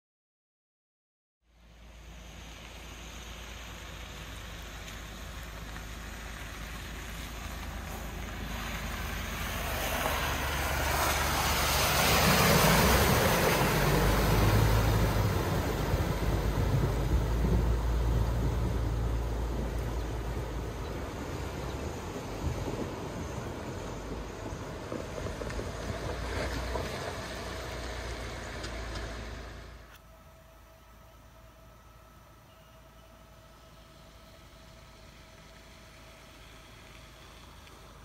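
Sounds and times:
vehicle engine running: 0:01.5 - 0:38.0
rushing water noise: 0:01.6 - 0:29.8.

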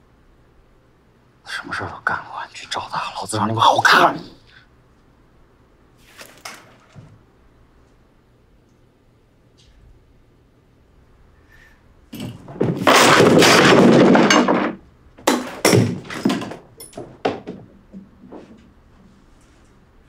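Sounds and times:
loud crash and clatter: 0:12.2 - 0:17.5
stick blows and knocks: 0:12.2 - 0:17.7.

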